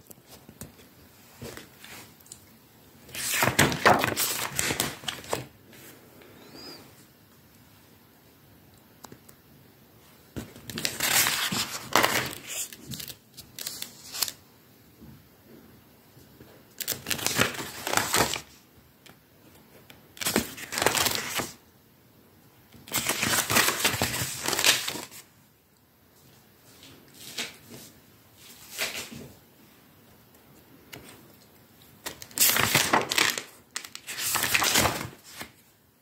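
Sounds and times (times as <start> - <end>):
book pages turning: 3.1 - 5.8, 10.4 - 14.4, 16.8 - 18.5, 20.2 - 21.6, 22.8 - 25.2, 32.0 - 35.6.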